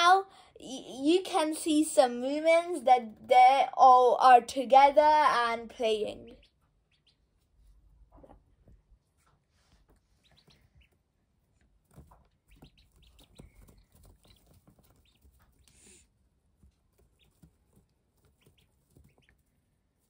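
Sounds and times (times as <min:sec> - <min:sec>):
ducklings peeping: 0:05.1 - 0:08.4, 0:09.8 - 0:20.0.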